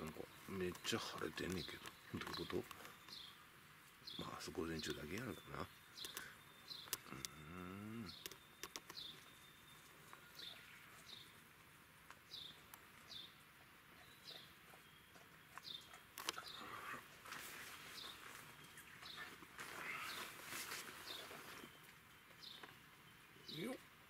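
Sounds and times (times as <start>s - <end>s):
falling bird chirp: 0.0s - 11.4s
soft clicks: 8.2s - 9.1s.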